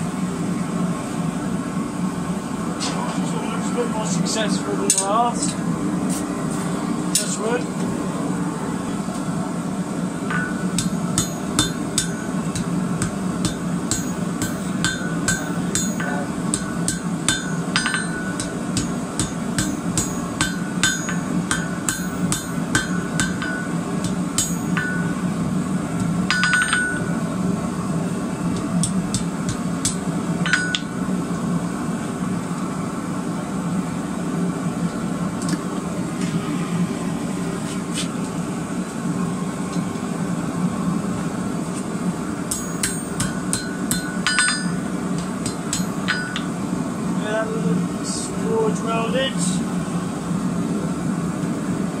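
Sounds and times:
hammer ringing on anvil: 10.3 - 25.3, 26.0 - 27.2, 28.8 - 31.0, 42.5 - 46.6.

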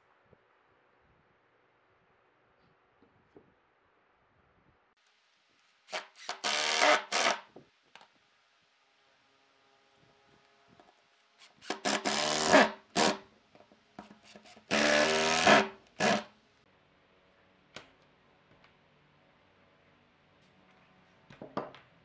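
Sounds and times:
cordless drill driving screws: 5.9 - 7.4, 11.4 - 13.2, 14.4 - 16.3.

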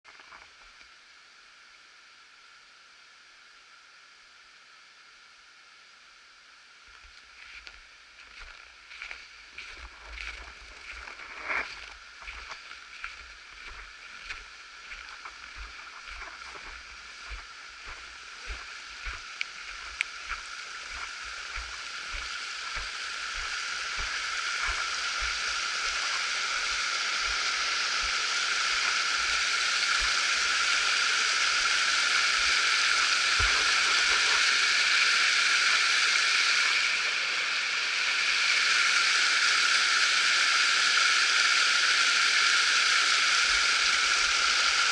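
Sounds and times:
footsteps in snow: 7.0 - 34.5
stream rushing: 9.3 - 37.2.

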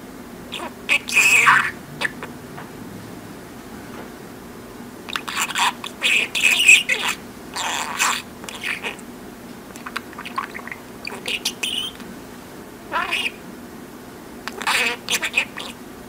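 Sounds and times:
budgerigar chattering: 0.5 - 2.4, 5.1 - 9.0, 9.8 - 12.0, 12.9 - 13.4, 14.5 - 15.8.

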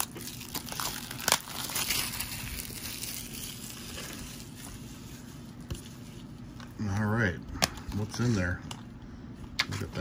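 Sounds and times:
packaging rustling and crinkling: 0.0 - 6.7.

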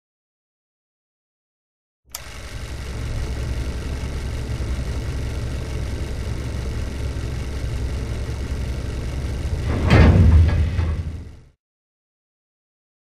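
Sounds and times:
deep rumbling drone: 2.4 - 11.5.

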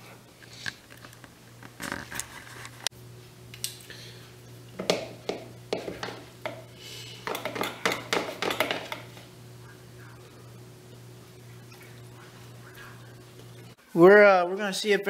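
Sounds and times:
low hum: 8.9 - 13.8.

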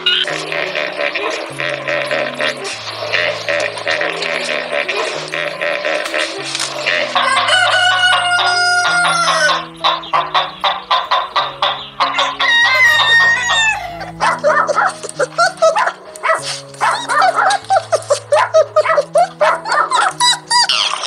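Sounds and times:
background music: 0.0 - 21.0
hens clucking: 0.0 - 21.0
rooster crowing: 7.1 - 9.7, 12.1 - 14.6.

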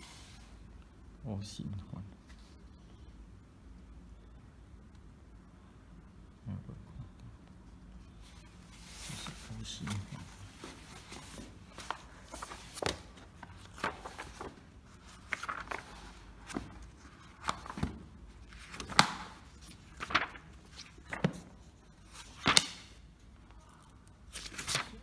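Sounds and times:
paper pages flipping: 8.3 - 23.0, 24.2 - 25.0.

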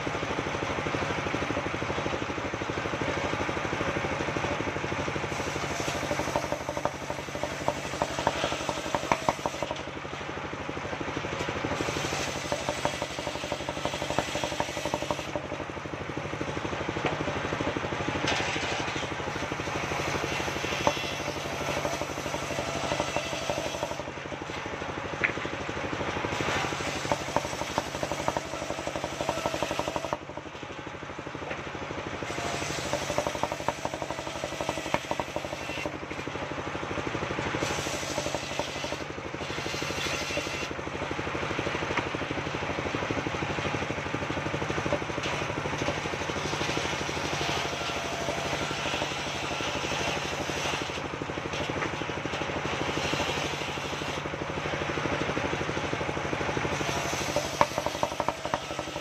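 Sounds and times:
circular saw cutting planks: 0.0 - 59.0
boards knocking on saw table: 5.4 - 9.9, 11.8 - 15.5, 19.9 - 24.0, 26.4 - 30.2, 32.3 - 36.0, 37.6 - 39.0, 56.8 - 59.0.

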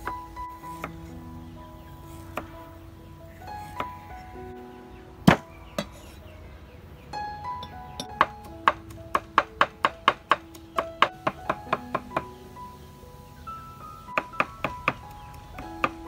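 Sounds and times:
background music of held notes: 0.0 - 16.0
cleaver chopping on wooden board: 5.3 - 6.0.

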